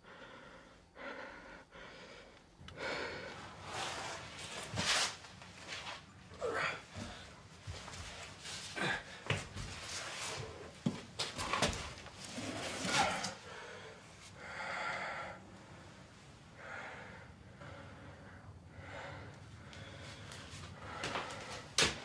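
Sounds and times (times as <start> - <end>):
person breathing heavily: 0.0 - 4.2, 12.8 - 21.9.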